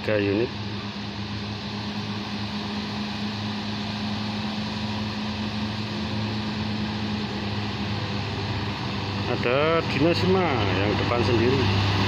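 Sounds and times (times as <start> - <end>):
bus diesel engine droning: 0.0 - 12.0.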